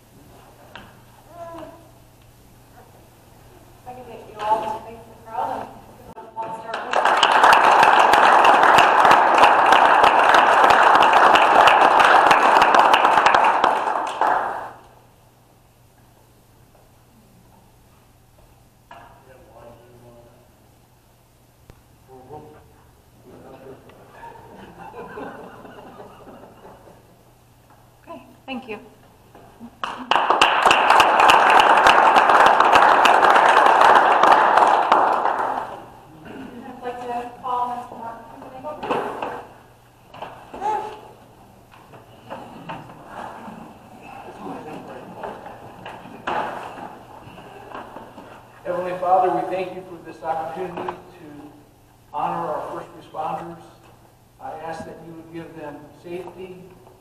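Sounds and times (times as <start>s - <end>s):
audience applauding: 6.5s - 15.0s, 29.8s - 36.0s.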